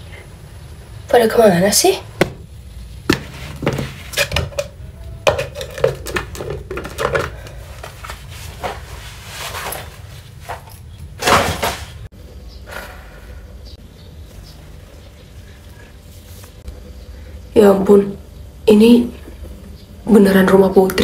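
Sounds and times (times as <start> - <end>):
knocks and clatters: 3.1 - 8.0.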